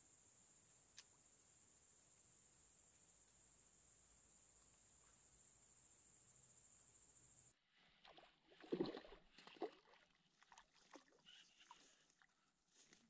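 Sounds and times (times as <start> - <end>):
insects chirping: 0.0 - 7.5.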